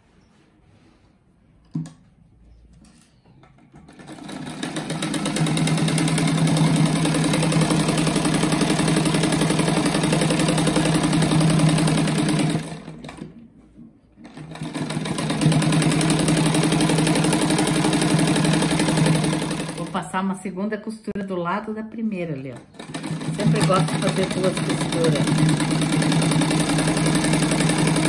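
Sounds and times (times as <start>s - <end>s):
sewing machine running: 3.9s - 13.3s, 14.2s - 20.0s, 22.6s - 28.0s.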